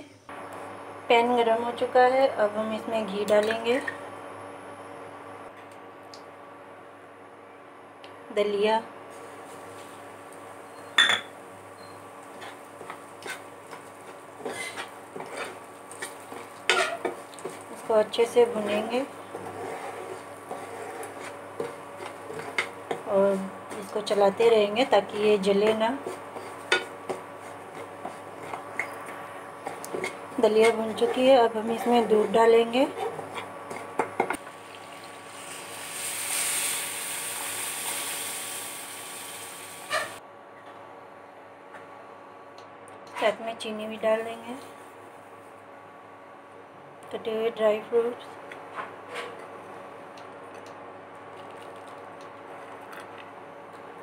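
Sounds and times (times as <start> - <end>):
milk sizzling in hot pan: 12.1 - 17.9, 32.9 - 40.2
spoon scraping and stirring: 12.2 - 24.4, 25.5 - 34.3.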